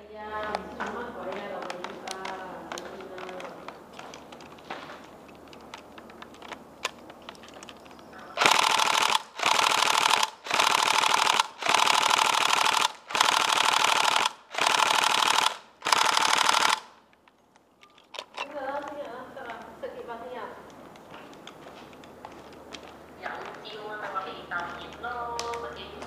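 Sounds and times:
faint clicks: 0:00.5 - 0:08.1
airsoft gun full auto bursts: 0:08.4 - 0:17.0.

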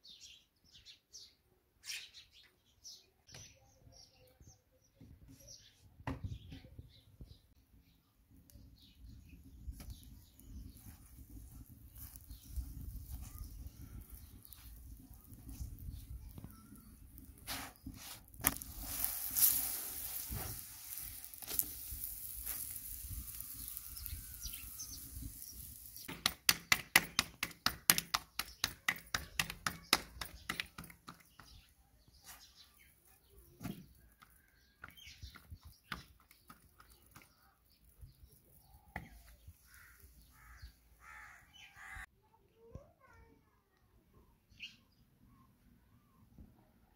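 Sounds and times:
food cooking on griddle: 0:08.6 - 0:31.6
crows cawing: 0:39.6 - 0:42.0.

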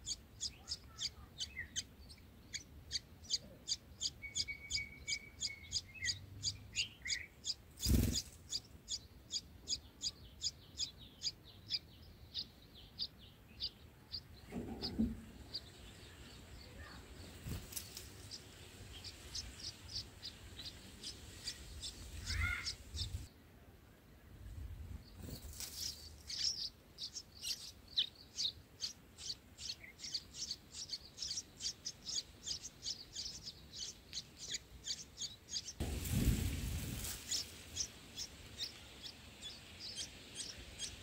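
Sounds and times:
short lower bird calls: 0:00.0 - 0:13.1, 0:18.9 - 0:23.3
nestlings high chirps: 0:00.0 - 0:23.3, 0:25.1 - 0:41.0.

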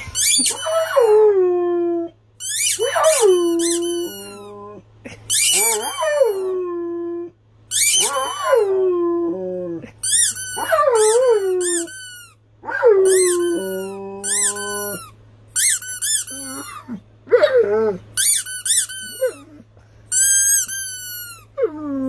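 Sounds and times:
squeaky toy squeaks: 0:00.0 - 0:01.1, 0:02.4 - 0:04.5, 0:05.2 - 0:06.5, 0:07.7 - 0:08.7, 0:10.0 - 0:12.4, 0:13.0 - 0:16.8, 0:18.2 - 0:19.5, 0:20.1 - 0:21.6
dog howling: 0:02.8 - 0:04.8, 0:08.0 - 0:09.9.

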